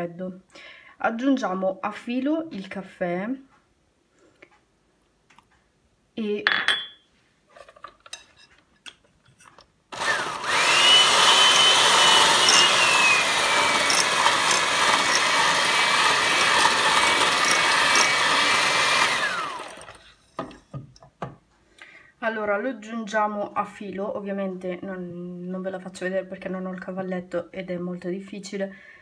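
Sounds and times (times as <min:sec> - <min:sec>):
electric hand mixer whining: 0:09.9 - 0:20.1.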